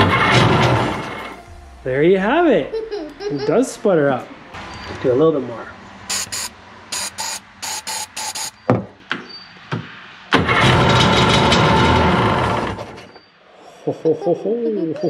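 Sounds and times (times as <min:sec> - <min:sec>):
engine cranking: 0:00.0 - 0:01.8, 0:10.3 - 0:13.1.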